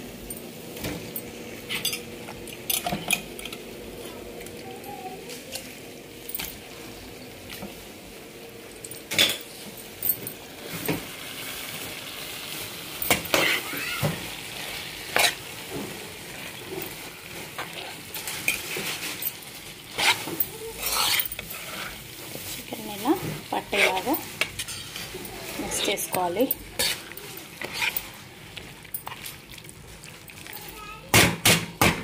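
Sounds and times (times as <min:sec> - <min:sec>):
chicken sizzling in a pan: 0:02.9 - 0:32.0
spatula scraping and knocking pan: 0:19.9 - 0:28.2.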